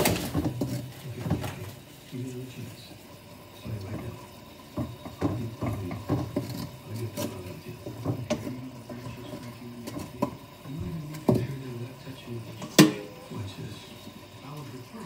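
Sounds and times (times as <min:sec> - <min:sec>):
clicks and taps of kitchen utensils: 0:00.0 - 0:01.8, 0:03.8 - 0:10.5, 0:11.1 - 0:11.6, 0:12.5 - 0:13.1.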